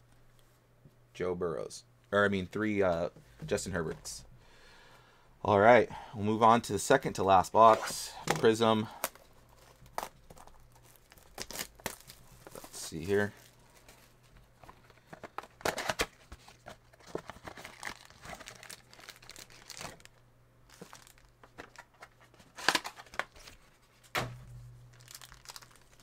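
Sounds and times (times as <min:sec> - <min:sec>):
plastic wrap crinkling and tearing: 0:09.0 - 0:26.0.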